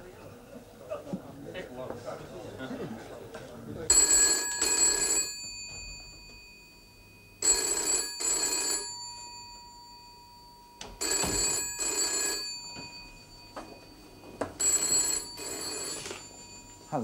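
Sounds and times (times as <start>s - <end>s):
telephone bell double ring: 3.9s - 17.0s.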